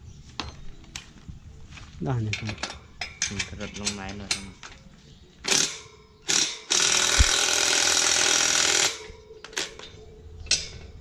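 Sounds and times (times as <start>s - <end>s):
cordless drill running: 6.3s - 9.0s.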